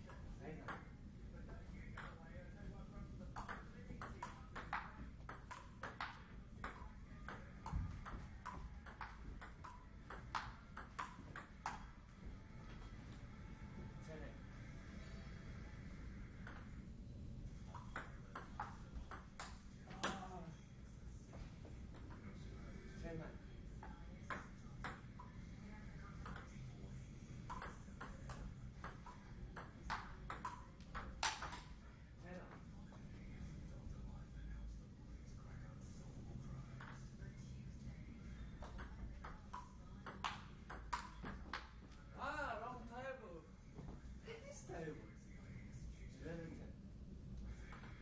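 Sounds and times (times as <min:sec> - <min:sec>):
table tennis ball hits: 0:03.3 - 0:11.9, 0:16.4 - 0:16.8, 0:17.6 - 0:20.4, 0:27.4 - 0:31.8, 0:38.6 - 0:41.7
table tennis ball clicking: 0:03.4 - 0:11.9.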